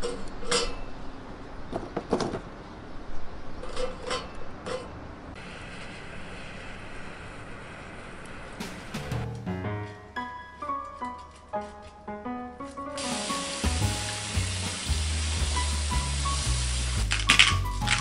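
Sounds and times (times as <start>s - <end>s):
gas blowtorch hissing: 5.4s - 8.6s, 13.0s - 18.0s
charcoal clunking on metal grate: 17.0s - 18.0s.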